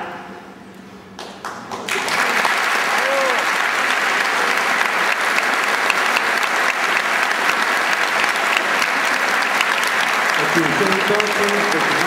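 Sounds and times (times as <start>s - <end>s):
large crowd applauding: 1.2s - 12.0s.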